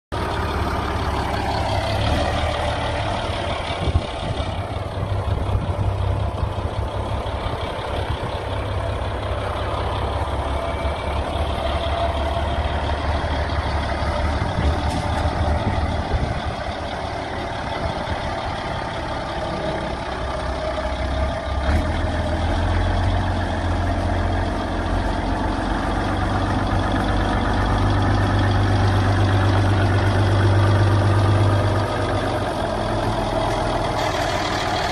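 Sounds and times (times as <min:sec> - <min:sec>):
diesel tractor engine at low revs: 0:00.1 - 0:34.9.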